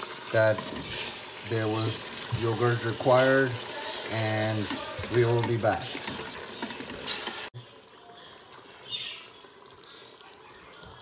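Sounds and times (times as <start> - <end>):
spoon stirring in steel pot: 0.0 - 7.5
sizzling: 0.0 - 11.0.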